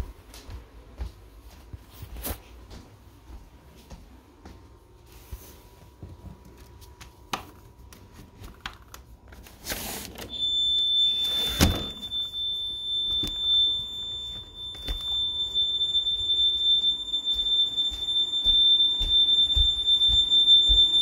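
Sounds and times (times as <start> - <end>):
high-pitched alarm tone: 10.3 - 21.0.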